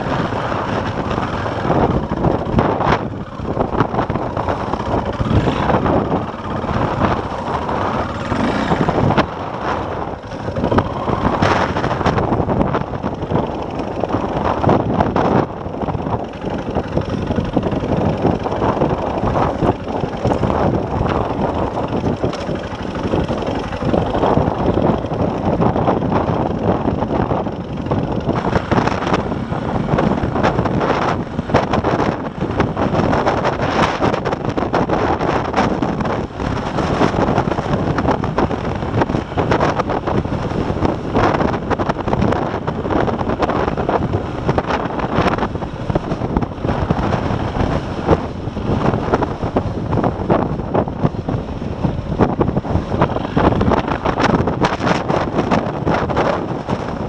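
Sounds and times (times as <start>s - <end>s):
motorcycle engine running: 0.0s - 57.0s
wind buffeting microphone: 0.0s - 57.0s.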